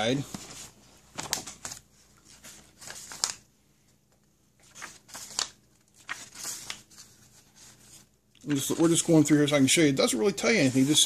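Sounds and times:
paper pages flipping: 0.2 - 3.5, 4.1 - 9.3.

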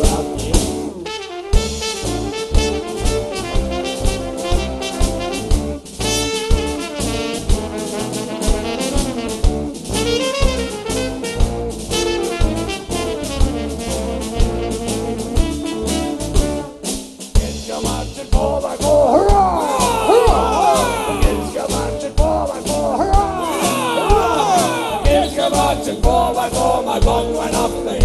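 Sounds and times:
live band playing: 0.0 - 17.4, 18.9 - 27.2
brass horn melody: 0.8 - 16.9, 23.0 - 27.0.

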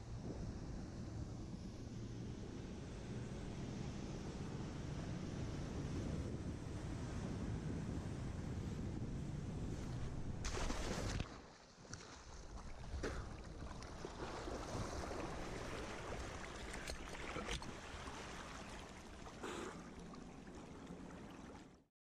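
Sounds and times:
wind noise on microphone: 4.5 - 11.3
water sloshing and splashing: 9.8 - 21.9.

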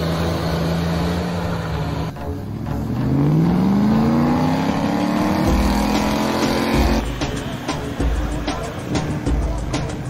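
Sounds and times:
engine revving in snow: 0.0 - 7.2.

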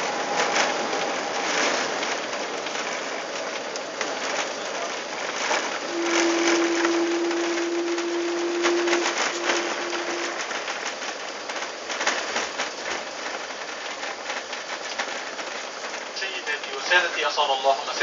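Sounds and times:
steady tone: 5.9 - 10.5.

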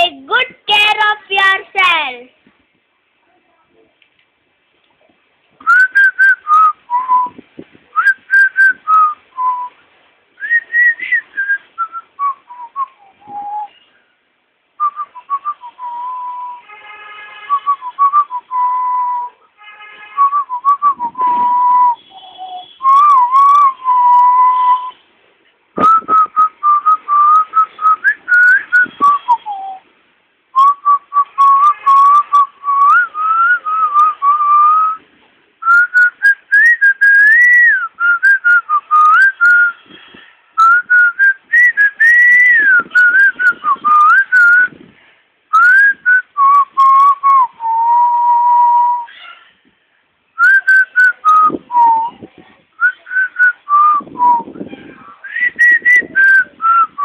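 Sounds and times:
person whistling a tune: 5.6 - 7.4, 8.0 - 9.7, 10.4 - 13.9, 14.8 - 16.6, 17.5 - 19.4, 20.2 - 25.0, 25.8 - 29.8, 30.6 - 35.0, 35.6 - 40.0, 40.6 - 44.8, 45.5 - 49.1, 50.4 - 52.2, 52.8 - 57.0.

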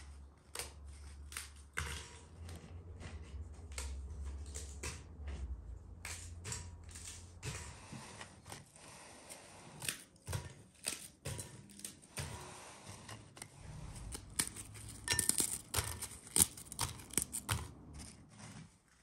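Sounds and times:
biscuits snapping and crunching: 14.0 - 18.1.

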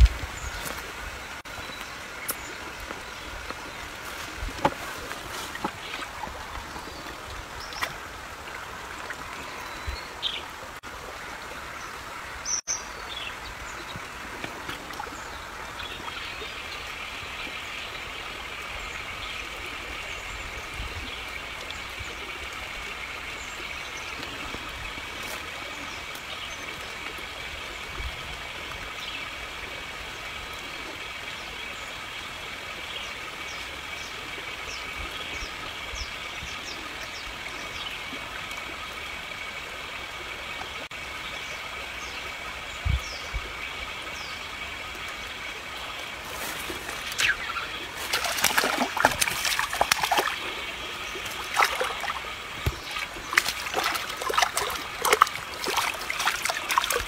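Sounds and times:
water splashing at bank: 0.0 - 11.0, 13.5 - 17.8, 45.4 - 57.0.

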